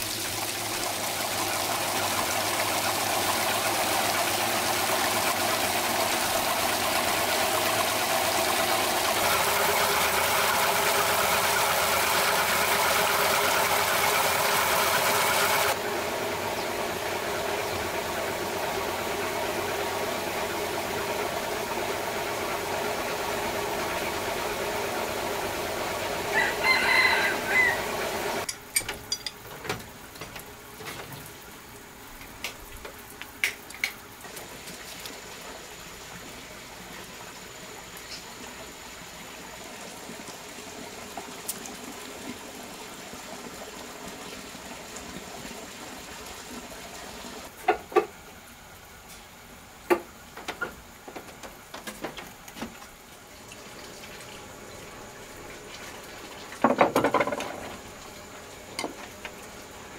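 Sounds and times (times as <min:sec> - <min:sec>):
running water splashing: 0:00.0 - 0:15.8, 0:17.8 - 0:47.6, 0:50.2 - 0:59.9
knocks: 0:56.6 - 0:57.7.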